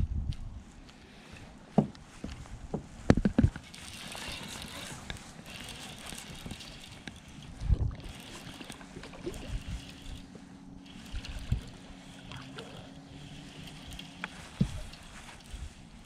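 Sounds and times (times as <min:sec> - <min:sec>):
wind on microphone: 0:00.0 - 0:00.7, 0:02.2 - 0:10.3, 0:10.9 - 0:16.0
boat engine hum: 0:03.6 - 0:16.0.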